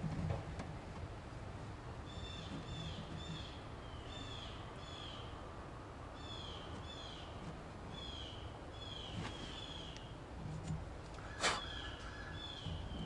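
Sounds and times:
low background rumble: 0.0s - 13.0s
bird calling: 11.2s - 13.0s.

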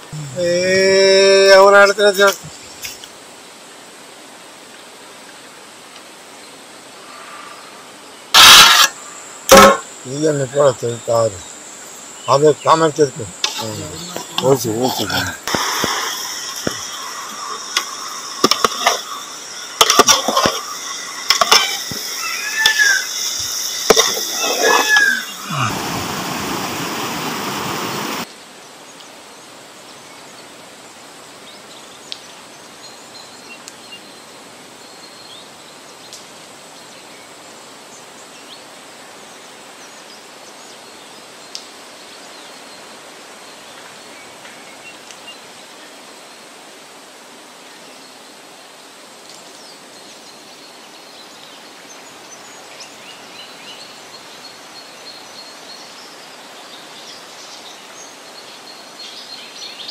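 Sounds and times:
outdoor hiss: 0.0s - 59.9s
river water roaring: 12.6s - 28.3s.

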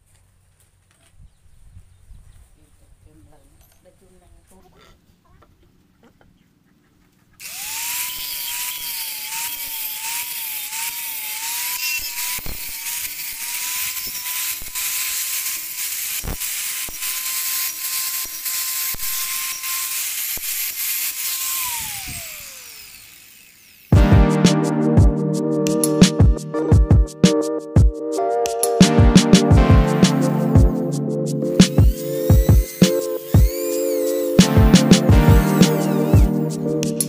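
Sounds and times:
angle grinder sanding wood: 7.4s - 24.6s, 29.9s - 37.0s.

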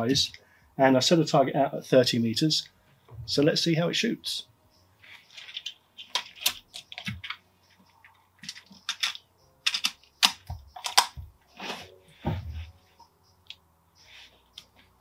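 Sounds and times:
air rifle action clicks and rustles: 5.2s - 11.3s.

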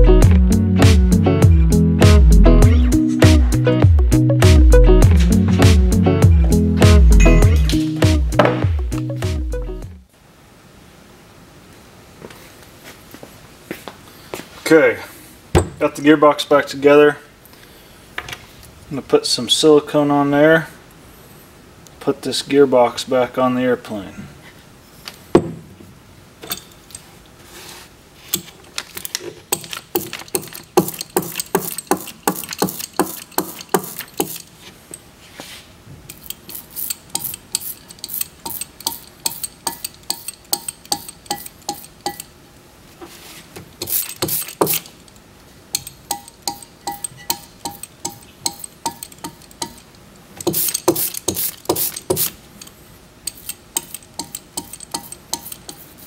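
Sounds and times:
socket ratchet clicking: 29.5s - 34.5s, 36.1s - 42.3s, 43.8s - 45.2s, 45.8s - 55.9s.

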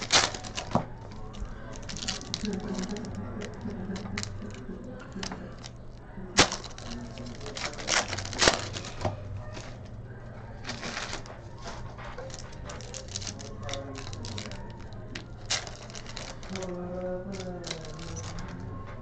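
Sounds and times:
card packs crinkling: 0.0s - 19.0s
packaging cracking: 0.0s - 19.0s
steady low hum: 0.0s - 19.0s.

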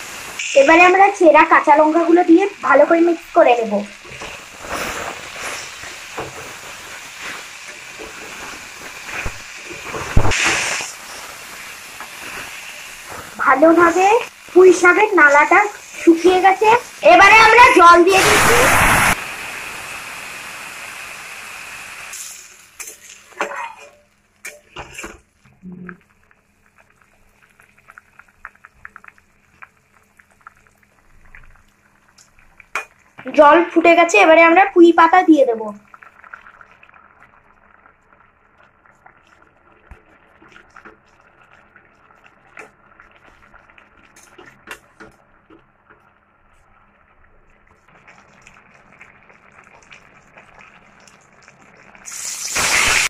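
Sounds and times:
water sizzling in hot oil: 0.0s - 53.0s
spatula scraping pan: 4.1s - 11.2s, 22.8s - 25.2s.

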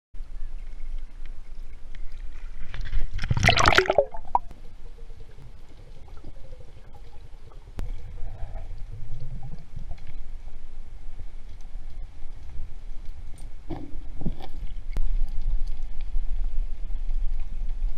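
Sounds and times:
low underwater rumbles: 0.2s - 17.9s
muffled river underwater: 0.2s - 17.9s
water splashing and gurgling: 2.0s - 10.4s.

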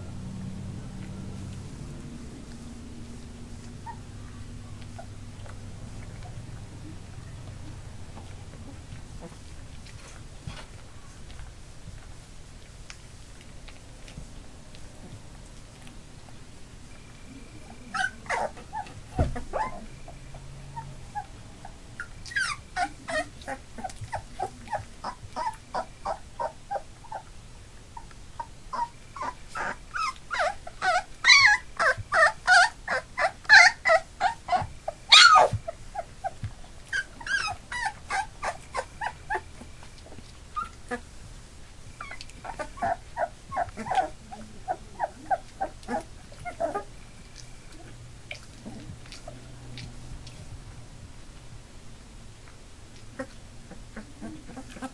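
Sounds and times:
puppies whimpering: 0.9s - 7.4s, 17.3s - 27.3s, 28.0s - 41.2s, 41.9s - 49.5s, 53.1s - 54.9s.

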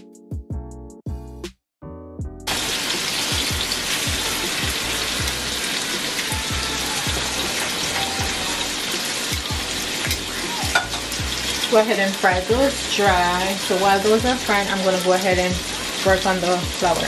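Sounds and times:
thumping music beat: 0.0s - 1.6s, 2.2s - 11.7s, 12.3s - 14.7s
chicken sizzling in oil: 2.5s - 17.0s.

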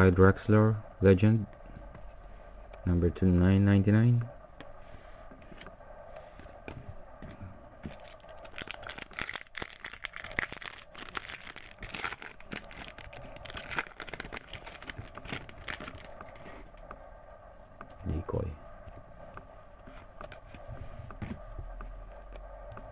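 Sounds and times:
foil wrapper crinkling and tearing: 7.9s - 16.4s.

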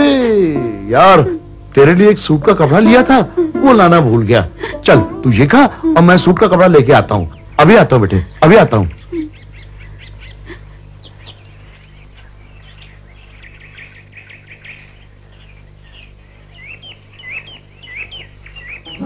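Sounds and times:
small birds chirping: 4.8s - 19.0s.

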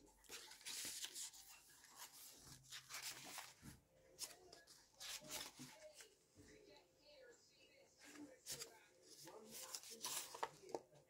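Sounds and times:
paper pages turning: 0.2s - 6.1s, 8.0s - 11.0s.

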